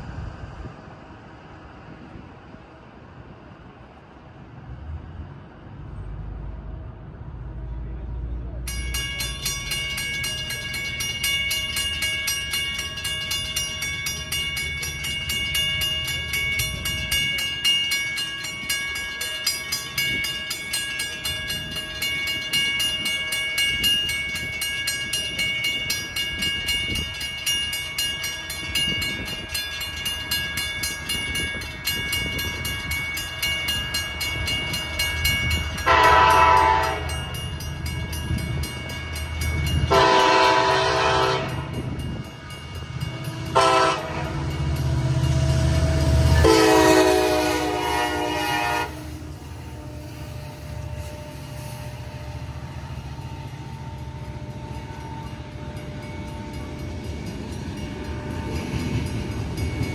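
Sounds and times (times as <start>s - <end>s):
railroad crossing bell ringing: 8.4s - 59.9s
locomotive horn blast: 35.8s - 37.2s, 39.9s - 41.7s, 43.5s - 44.5s, 46.3s - 52.1s.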